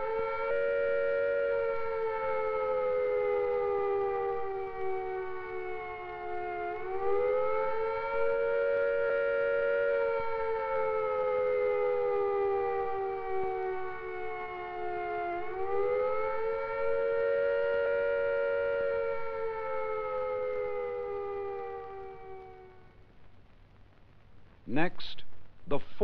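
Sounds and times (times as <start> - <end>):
air-raid siren wailing: 0.0 - 23.1.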